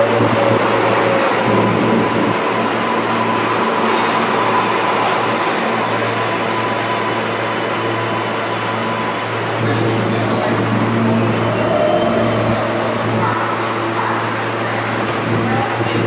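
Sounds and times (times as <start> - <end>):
subway train wheels rumbling: 0.0 - 16.0
thin steady whine: 10.1 - 14.9.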